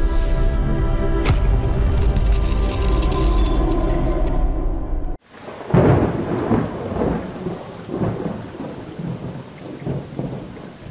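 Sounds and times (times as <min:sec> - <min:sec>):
background music: 0:00.0 - 0:05.2
thunder rumbling: 0:01.3 - 0:10.9
steady rain: 0:05.2 - 0:10.9.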